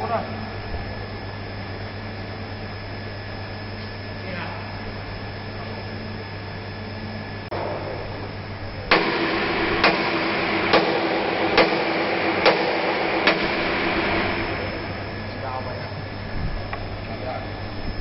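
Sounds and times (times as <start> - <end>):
low steady hum: 0.0 - 18.0
machine hiss and held tone: 7.6 - 18.0
sharp knocks: 8.9 - 13.8.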